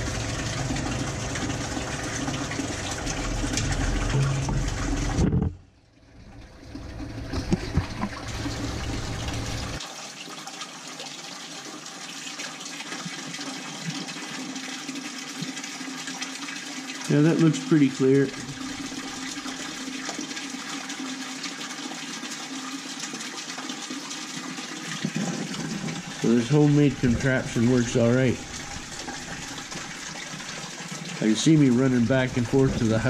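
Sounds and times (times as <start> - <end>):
water gushing into plastic bucket: 0.0 - 33.0.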